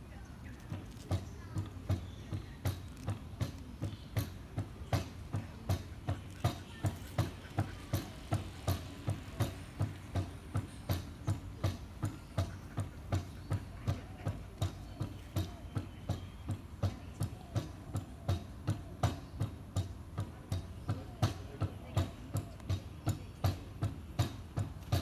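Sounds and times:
fitness machine knocking: 0.2 - 25.0.

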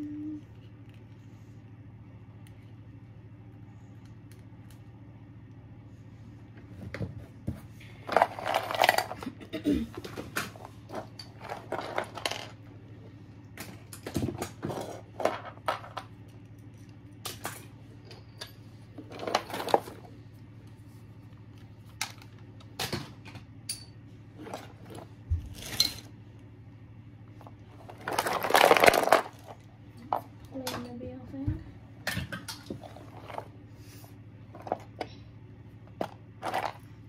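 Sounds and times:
plastic toys clattering: 8.0 - 12.7, 13.6 - 17.7, 18.4 - 20.1, 21.8 - 23.8, 24.4 - 26.1, 27.4 - 31.0, 32.1 - 33.6, 34.5 - 35.1, 35.9 - 36.9.

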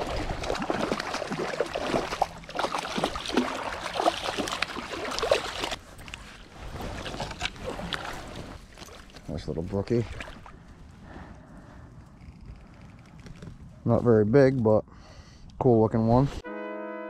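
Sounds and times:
fish splashing in water: 0.0 - 5.8.

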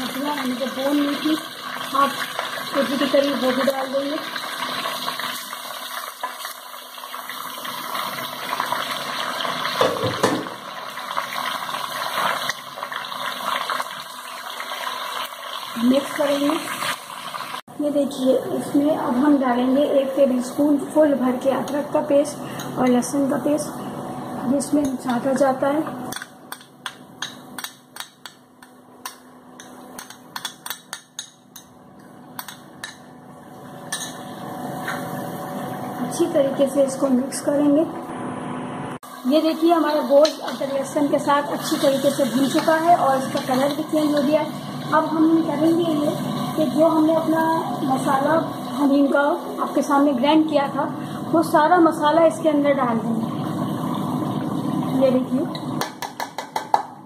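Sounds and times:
meat sizzling in hot oil: 0.0 - 18.3, 39.0 - 56.0.

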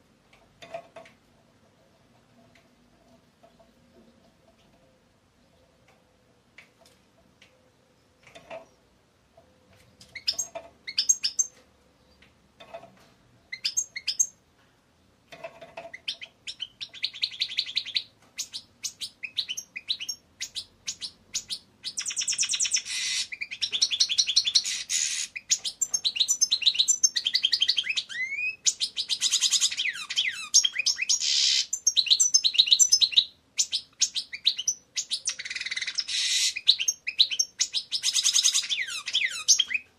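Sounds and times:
goldfinch chirping and twittering: 10.2 - 11.5, 15.9 - 39.9.

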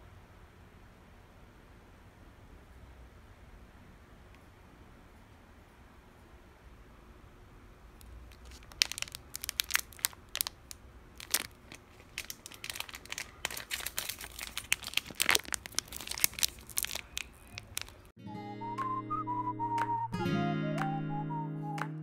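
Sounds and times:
plastic wrapper crinkling and tearing: 8.0 - 18.1.

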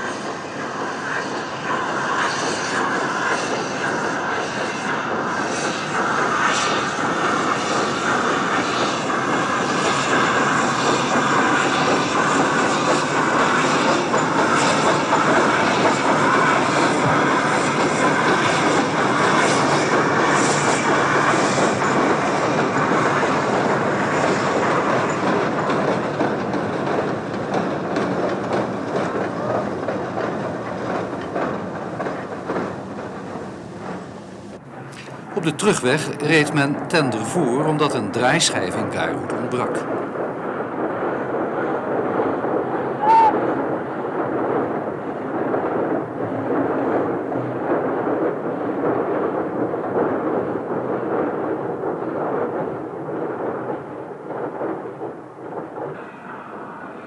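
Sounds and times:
steam locomotive running: 0.0 - 57.0.

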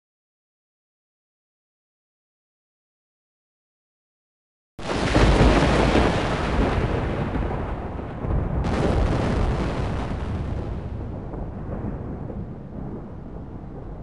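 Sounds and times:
rolling thunder: 4.8 - 14.0.

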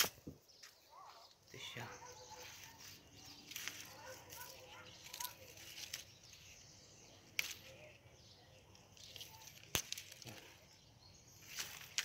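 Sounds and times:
leaves rustling: 1.5 - 12.0
bean pods snapping: 3.3 - 6.5, 7.2 - 12.0.

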